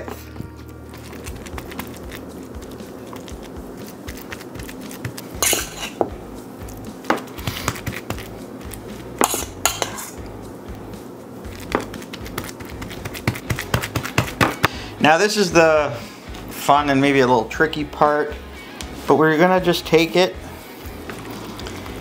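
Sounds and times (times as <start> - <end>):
metal spoon scraping metal bowl: 4.8 - 6.1, 9.2 - 10.2.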